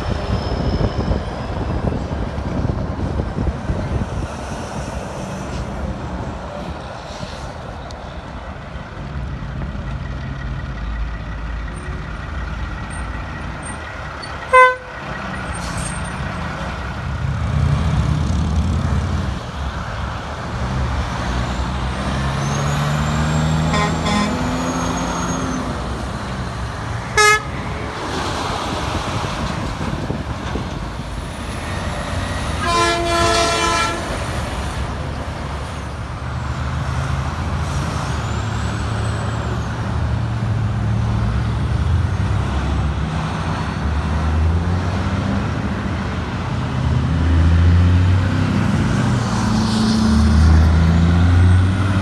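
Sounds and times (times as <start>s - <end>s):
semi trucks revving and passing: 0.0s - 52.0s
short horn beeps: 14.5s - 15.0s, 23.7s - 24.4s
multi-note horn blast: 23.7s - 24.5s, 27.2s - 27.5s, 32.6s - 34.1s.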